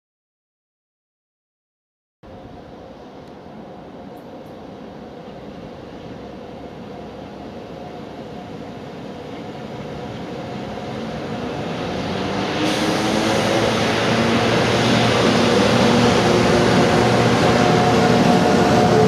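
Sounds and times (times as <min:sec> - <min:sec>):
steady multi-tone hum: 0:02.2 - 0:12.4
electric locomotives approaching: 0:02.2 - 0:19.0
rail noise: 0:02.2 - 0:19.0.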